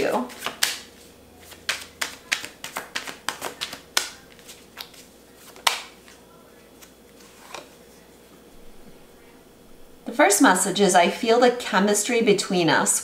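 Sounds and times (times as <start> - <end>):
cards being shuffled: 0.0 - 7.8.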